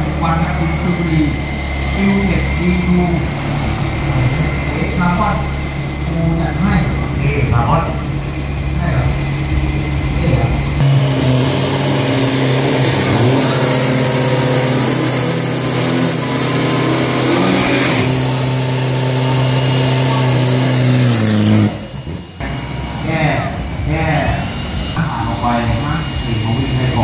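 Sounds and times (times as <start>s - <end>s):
engine revving high: 0.0s - 27.0s
tyres spinning: 0.0s - 27.0s.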